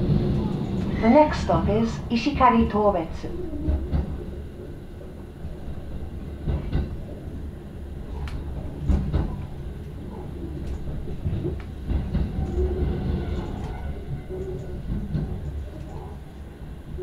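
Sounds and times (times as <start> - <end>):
train wheels rumbling: 0.0 - 17.0
wheels knocking on rail joints: 3.6 - 4.7, 5.9 - 7.4, 8.1 - 16.3.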